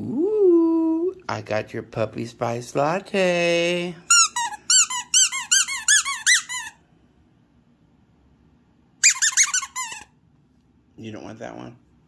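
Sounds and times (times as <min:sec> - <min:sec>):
squeaky dog toy squeaking: 0:04.1 - 0:06.8, 0:09.0 - 0:10.2.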